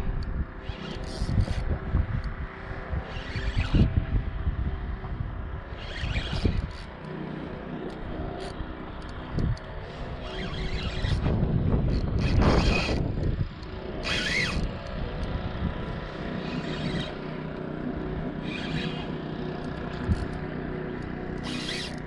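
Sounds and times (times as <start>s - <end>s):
low hum: 0.0s - 22.0s
spinning reel cranking: 0.6s - 1.6s, 3.0s - 3.9s, 5.8s - 7.0s, 8.4s - 9.1s, 10.2s - 13.2s, 14.0s - 15.3s, 16.4s - 17.4s, 18.4s - 20.4s, 21.0s - 22.0s.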